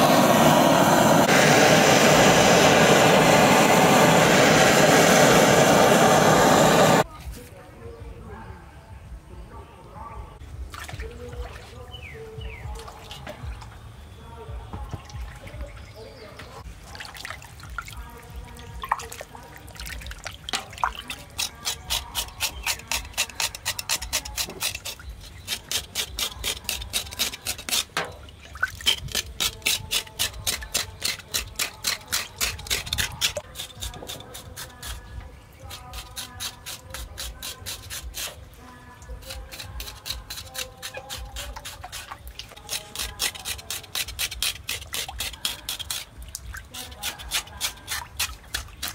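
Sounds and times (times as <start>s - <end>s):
water dripping in metal basin: 16.8s - 21.6s, 27.9s - 29.1s, 44.8s - 48.9s
knife scraping charred skin: 20.5s - 48.9s.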